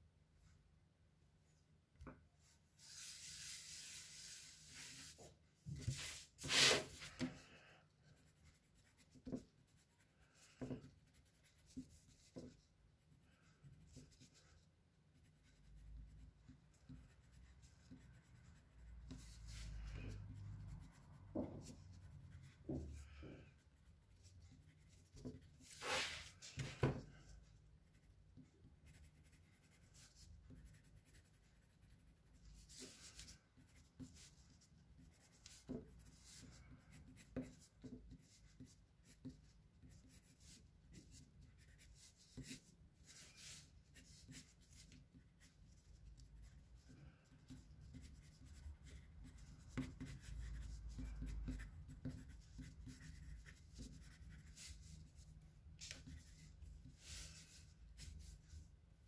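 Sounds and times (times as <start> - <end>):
drawing tool scratching paper: 5.8 - 7.4, 24.1 - 26.8.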